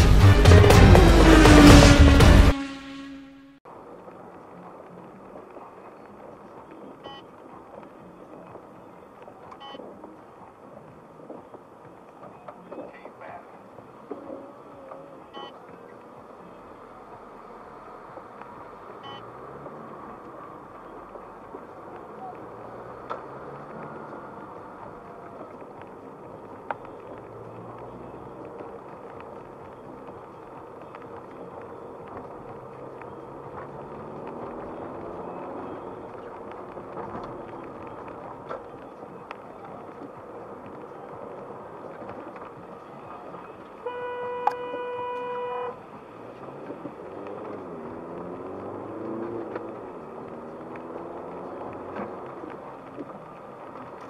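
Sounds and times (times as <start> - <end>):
car engine: 0.0 - 3.6, 16.4 - 39.8, 43.8 - 54.0
car horn: 0.0 - 3.6, 43.8 - 45.8
tyre and road noise: 0.0 - 54.0.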